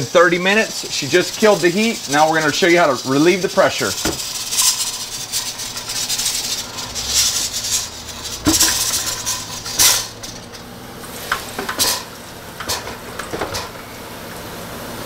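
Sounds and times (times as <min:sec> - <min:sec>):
pressure cooker hiss: 0:00.0 - 0:15.0
metal pot and lid clanking: 0:03.9 - 0:13.8.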